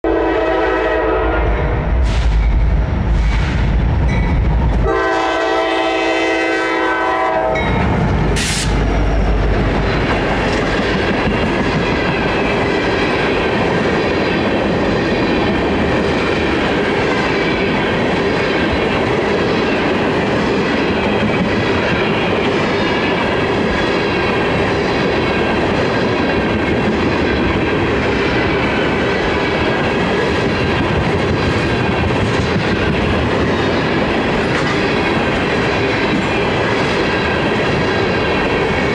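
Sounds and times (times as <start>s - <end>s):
train horn blast: 0.0s - 1.8s, 4.8s - 7.7s
diesel locomotive rumble: 0.1s - 38.9s
train wheels clacking on rails: 1.9s - 38.9s.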